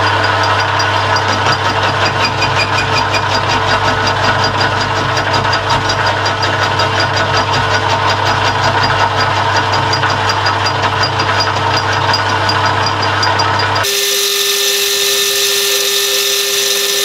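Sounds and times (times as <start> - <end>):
lathe motor and gear hum: 0.0 - 17.0
metal cutting noise: 13.8 - 17.0.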